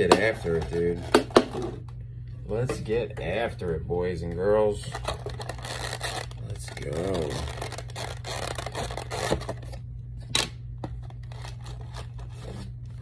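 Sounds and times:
plastic crinkling and scraping: 0:04.8 - 0:09.8, 0:10.9 - 0:13.0.

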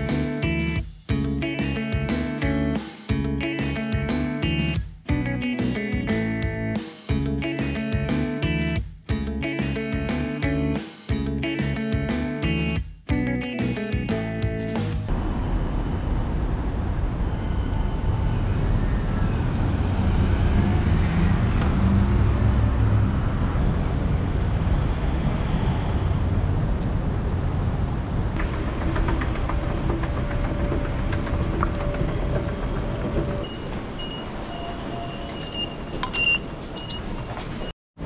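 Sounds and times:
low rumble of traffic: 0:15.1 - 0:37.7.

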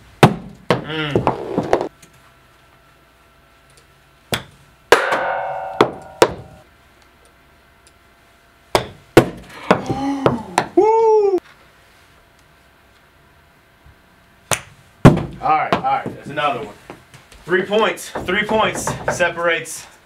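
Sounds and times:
balls knocking against cardboard box: 0:00.2 - 0:01.9, 0:08.8 - 0:10.8, 0:15.0 - 0:16.2, 0:18.0 - 0:19.4
golf club striking balls: 0:04.3 - 0:06.6
ringing tone: 0:05.1 - 0:06.6
balls bouncing on floor: 0:08.8 - 0:10.8, 0:18.1 - 0:19.3.

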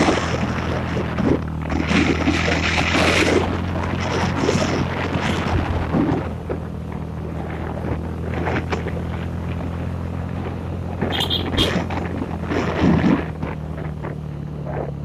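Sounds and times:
wind buffeting microphone: 0:00.0 - 0:08.7
motorbike engine running: 0:00.0 - 0:15.0.

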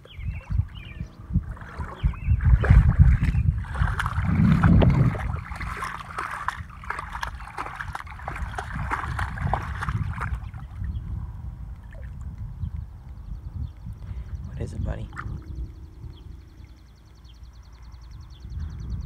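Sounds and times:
heavy low rumble: 0:00.0 - 0:19.0
dog splashing in water: 0:01.5 - 0:10.8.

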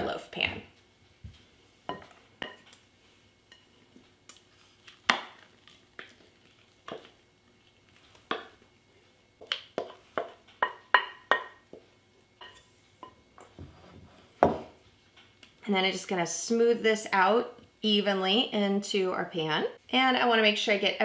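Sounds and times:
wooden spoon knocking on bowl: 0:09.4 - 0:13.2.

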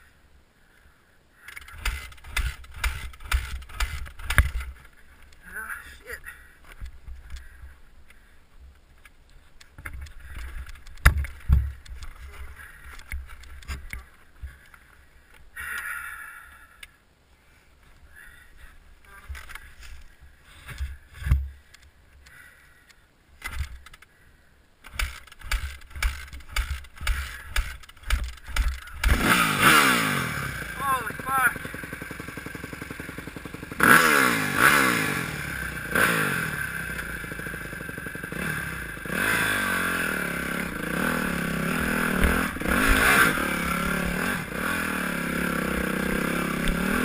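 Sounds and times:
dirt bike thumps and scrapes: 0:01.6 - 0:05.0, 0:09.7 - 0:14.6, 0:19.2 - 0:21.6, 0:23.4 - 0:24.0, 0:24.9 - 0:29.6.

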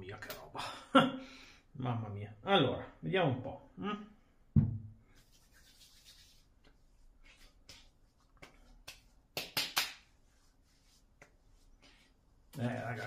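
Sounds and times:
palms rubbing on skin: 0:05.1 - 0:13.0
hands slapping cheeks: 0:05.3 - 0:10.2, 0:11.1 - 0:12.6.

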